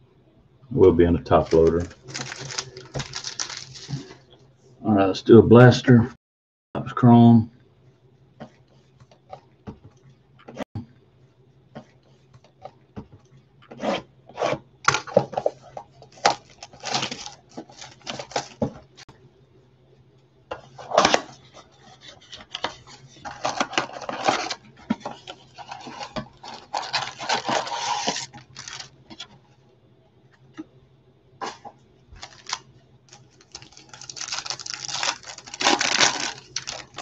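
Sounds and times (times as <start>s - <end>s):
foil packs crinkling: 1.2s - 4.2s, 14.9s - 19.0s, 23.3s - 29.2s, 32.2s - 37.0s
cardboard box tearing: 26.5s - 28.9s, 33.5s - 37.0s.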